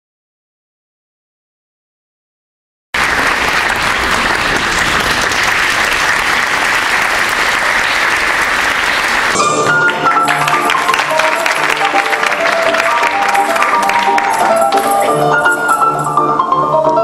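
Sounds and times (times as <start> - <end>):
audience applauding: 3.0 - 15.2
music: 9.3 - 17.0.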